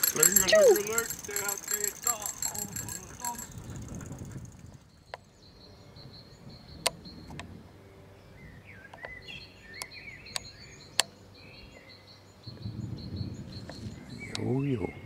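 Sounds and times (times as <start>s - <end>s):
sharp clicks: 0.0s - 3.7s
bird singing warbled phrases: 8.3s - 15.0s.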